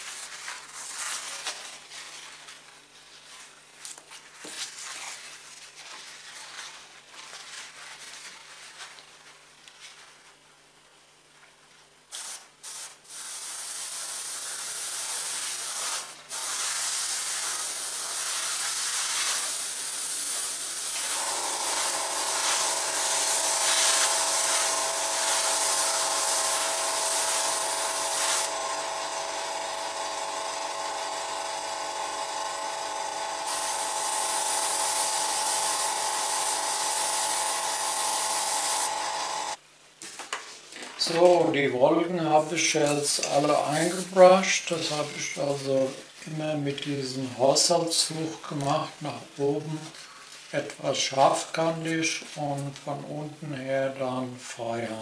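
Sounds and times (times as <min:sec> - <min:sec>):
airbrush spraying air hiss: 0:12.1 - 0:29.4, 0:33.3 - 0:39.6
air compressor motor hum: 0:12.2 - 0:39.6.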